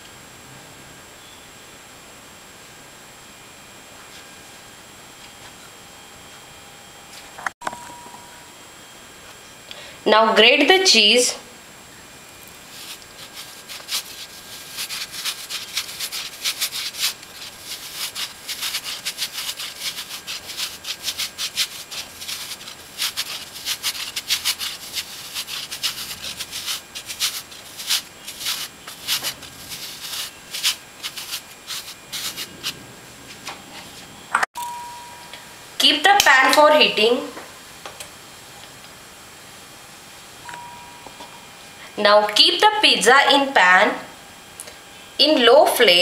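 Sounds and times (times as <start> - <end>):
cheese grating on metal grater: 12.5 - 33.5.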